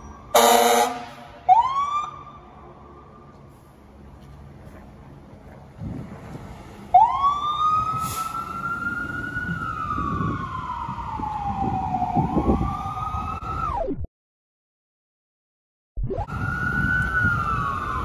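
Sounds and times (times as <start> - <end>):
fire truck siren wailing: 0.0 - 3.3, 6.9 - 13.9, 16.1 - 18.0
low engine rumble: 2.2 - 13.6.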